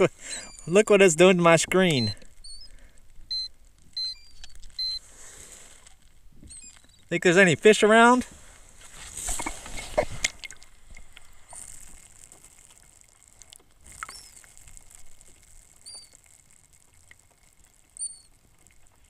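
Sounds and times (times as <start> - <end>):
underwater clicks and crackles: 0.0 - 19.0
faint short chirps: 0.2 - 0.7, 2.0 - 5.0, 6.4 - 7.1, 15.8 - 16.2, 18.0 - 18.3.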